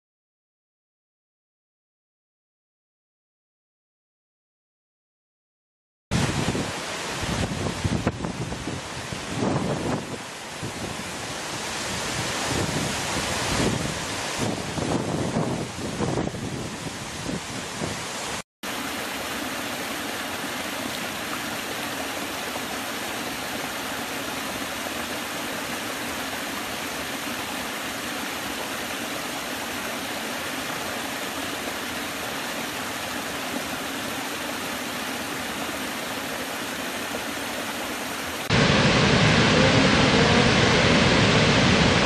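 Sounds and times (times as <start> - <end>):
wind on microphone: 6.1 - 18.4, 38.5 - 42.0
stream rushing over rocks: 6.1 - 42.0
waterfall rushing: 6.2 - 42.0.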